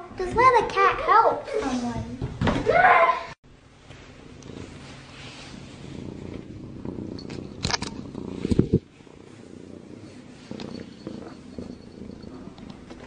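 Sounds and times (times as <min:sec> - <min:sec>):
kitten purring: 0:04.1 - 0:13.0.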